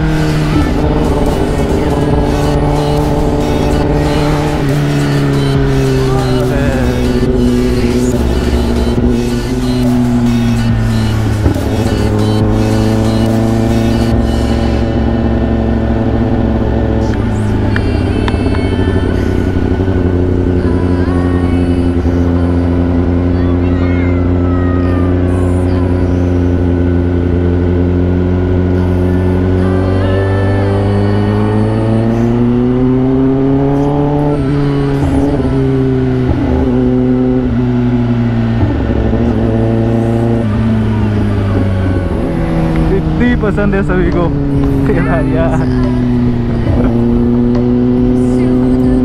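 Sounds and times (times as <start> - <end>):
motorcycle engine running: 0.0 - 49.0.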